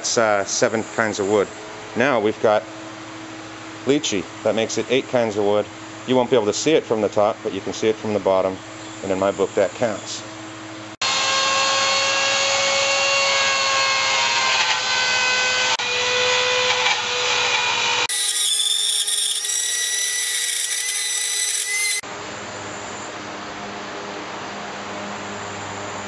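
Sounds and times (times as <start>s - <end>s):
rotary tool cutting wood: 14.1s - 22.0s.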